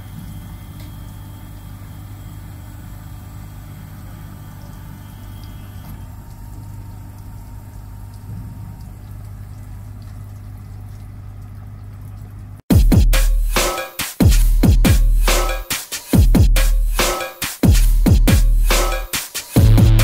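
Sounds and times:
low machinery hum: 0:00.0 - 0:12.6.

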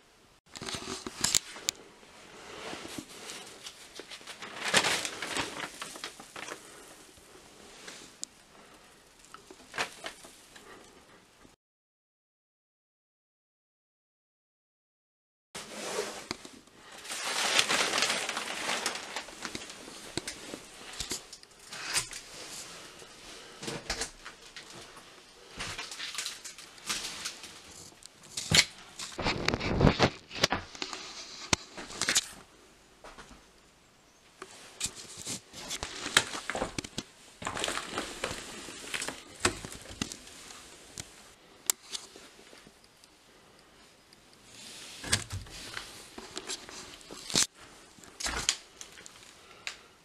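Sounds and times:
footsteps crunching debris and paper: 0:02.8 - 0:06.9, 0:16.8 - 0:22.7, 0:23.4 - 0:32.4, 0:34.8 - 0:40.7.

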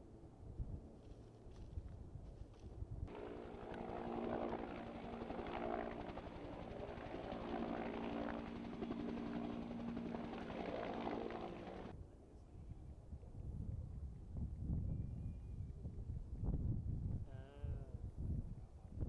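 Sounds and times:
helicopter engine whine: 0:03.1 - 0:11.9
helicopter rotor chopping: 0:03.1 - 0:11.9.

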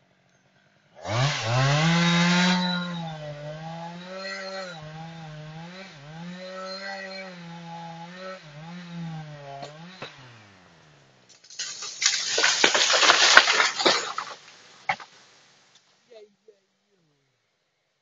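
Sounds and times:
chainsaw running: 0:01.0 - 0:15.2.

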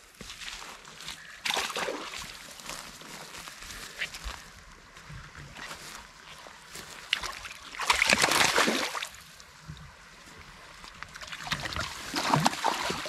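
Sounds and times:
light water noise: 0:00.1 - 0:13.0
fish thrashing and splashing: 0:07.2 - 0:09.1, 0:11.2 - 0:13.0.

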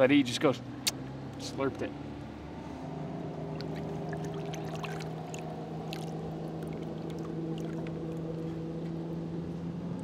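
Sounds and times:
engine hum: 0:00.0 - 0:10.0
fish splashing: 0:03.5 - 0:08.6
water sloshing and splashing: 0:03.5 - 0:08.9.

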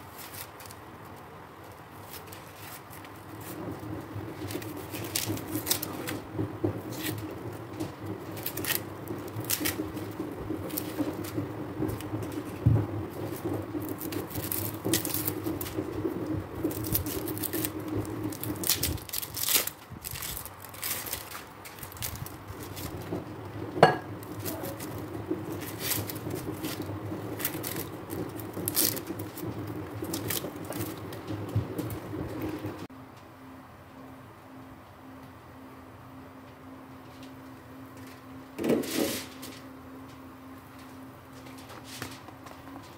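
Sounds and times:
onion skins crackling: 0:00.0 - 0:32.9.

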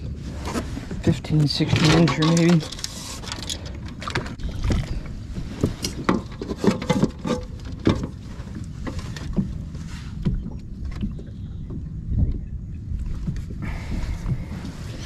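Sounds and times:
low wind rumble: 0:00.0 - 0:15.0
knocks and thuds of fish handling: 0:04.0 - 0:09.6, 0:13.1 - 0:14.6.

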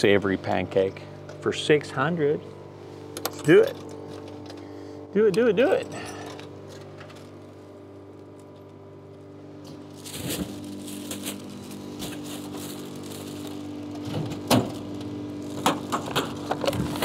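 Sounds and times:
vending machine humming: 0:00.0 - 0:17.0
dispensing mechanism clunking: 0:10.1 - 0:17.0.

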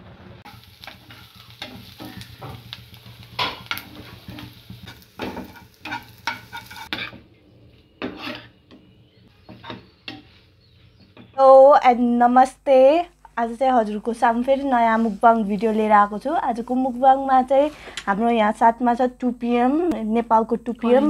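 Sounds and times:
onions sizzling in oil: 0:00.4 - 0:07.2
metal spoon scraping pan: 0:00.5 - 0:07.2, 0:08.0 - 0:08.6.

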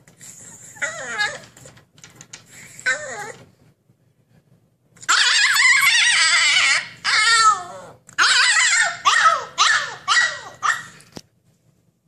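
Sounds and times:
puppy howling and whining: 0:00.7 - 0:01.8, 0:02.8 - 0:03.6, 0:05.1 - 0:10.9.

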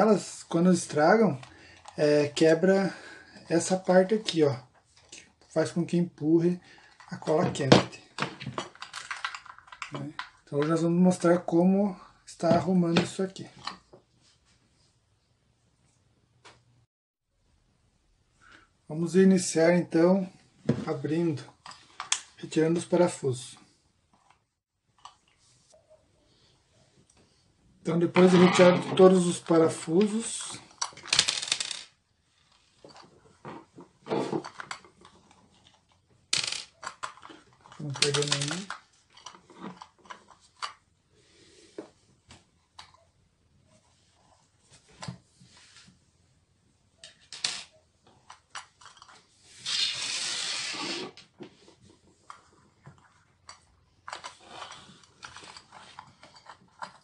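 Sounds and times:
plastic housing clicking and rubbing: 0:08.2 - 0:10.8, 0:21.5 - 0:22.4, 0:28.1 - 0:40.9, 0:47.0 - 0:50.0, 0:51.0 - 0:57.0.

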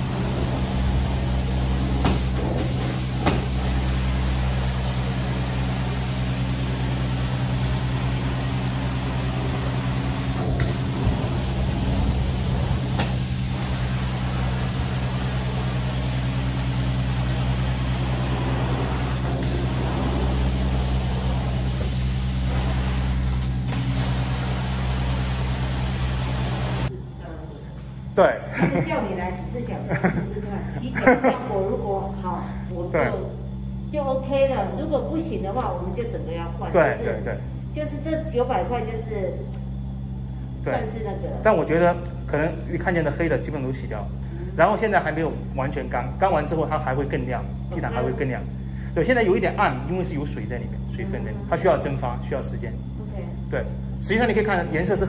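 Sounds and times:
rushing hiss of suction: 0:00.0 - 0:26.9
machine hum: 0:00.0 - 0:55.0.

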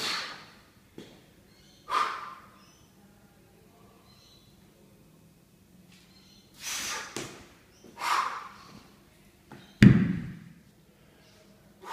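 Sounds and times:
kettlebell thudding on floor: 0:09.8 - 0:10.6.

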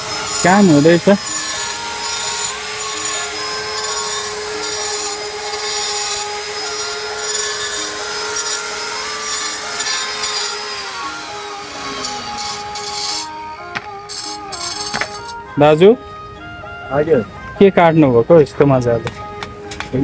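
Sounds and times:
angle grinder cutting stone: 0:00.0 - 0:16.0.

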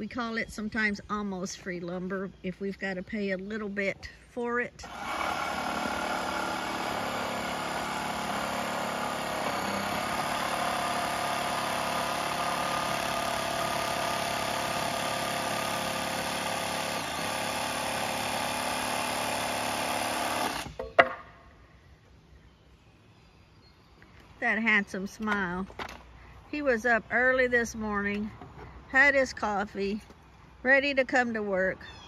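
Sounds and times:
power saw cutting wood: 0:04.8 - 0:20.8
sharp knocks: 0:20.6 - 0:21.3.

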